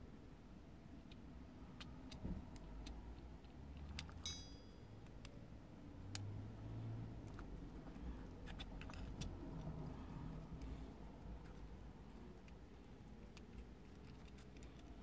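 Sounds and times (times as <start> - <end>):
small parts clicking and tapping: 1.8 - 6.3, 7.2 - 15.0
sharp ringing click: 4.2 - 4.9.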